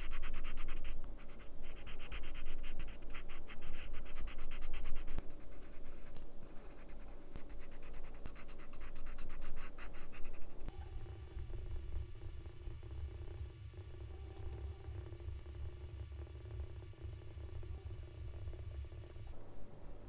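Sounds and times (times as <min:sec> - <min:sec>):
pencil scratching on paper: 0:00.0 - 0:10.7.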